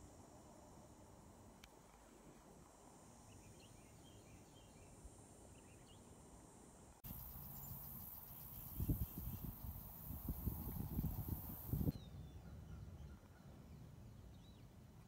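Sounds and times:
hiss with fast insect ticking: 0:00.0 - 0:11.9
insects trilling: 0:01.8 - 0:11.9
faint chirps: 0:07.0 - 0:14.8.

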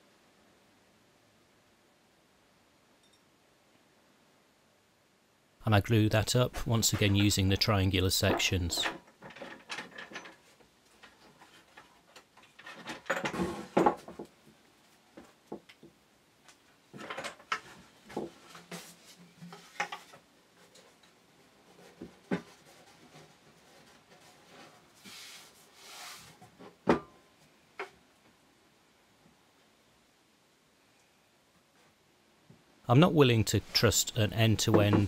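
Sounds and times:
wood rubbing and sliding: 0:21.6 - 0:26.7, 0:33.5 - 0:35.0
wood and clamps knocking: 0:34.6 - 0:35.0.

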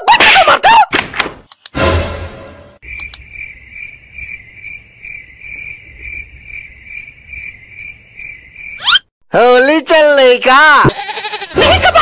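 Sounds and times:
cricket chirping: 0:02.8 - 0:09.0.

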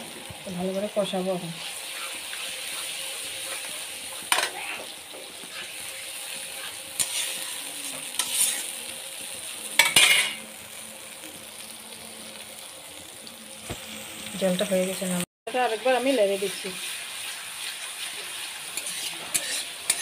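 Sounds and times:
paste sizzling in oil: 0:00.0 - 0:20.0
metal spatula scraping pan: 0:01.6 - 0:08.8, 0:17.2 - 0:20.0.

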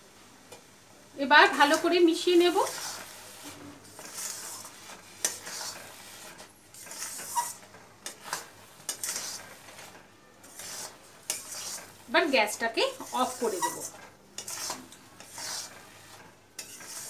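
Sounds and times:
metal spatula scraping pan: 0:01.5 - 0:17.0.

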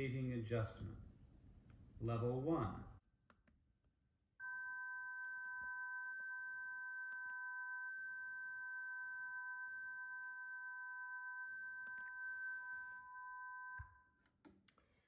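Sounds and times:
two steady sine tones: 0:04.4 - 0:14.2.

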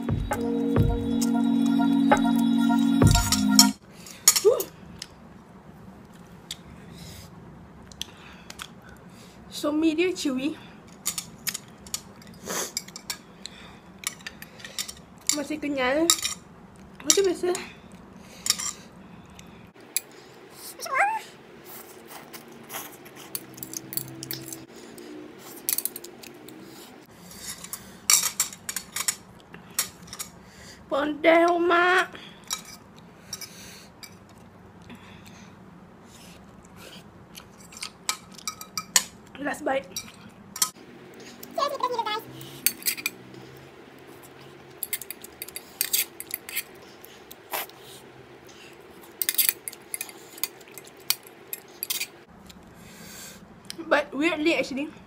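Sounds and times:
person chewing noodles: 0:21.5 - 0:28.0, 0:32.3 - 0:38.6, 0:43.2 - 0:52.8
wet chewing mouth clicks: 0:21.8 - 0:24.4.

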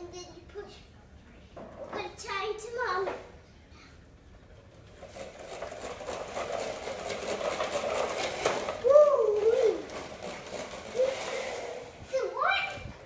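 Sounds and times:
toy truck wheels rattling on floor: 0:04.6 - 0:12.8
child crying out: 0:08.8 - 0:09.9.

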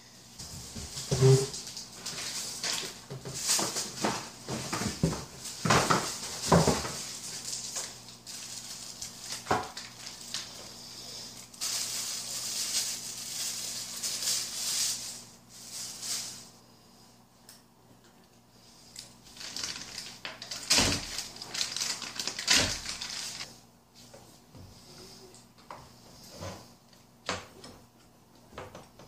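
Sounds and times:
plastic bag rustling: 0:00.4 - 0:16.6, 0:19.2 - 0:23.5.

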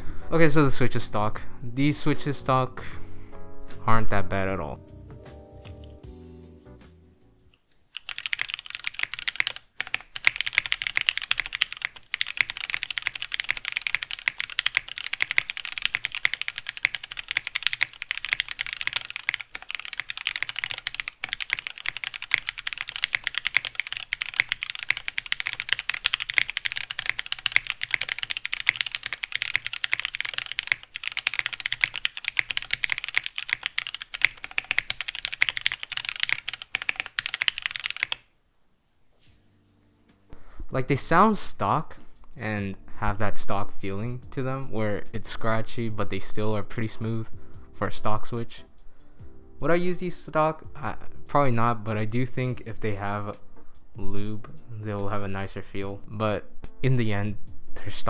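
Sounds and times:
mechanical keyboard typing: 0:07.9 - 0:38.3.

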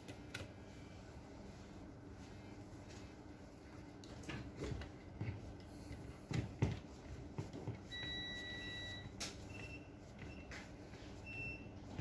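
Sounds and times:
steady high beep: 0:07.9 - 0:10.4.

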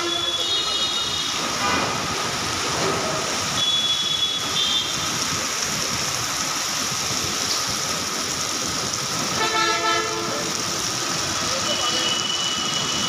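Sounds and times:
vehicle horn toot: 0:00.0 - 0:01.4, 0:03.6 - 0:05.0, 0:09.4 - 0:10.3
heavy rain on a street: 0:00.0 - 0:13.0.

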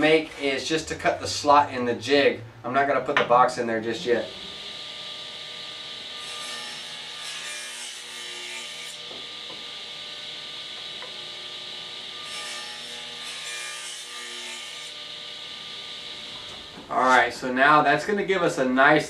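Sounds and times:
table saw motor hum: 0:03.8 - 0:16.8.

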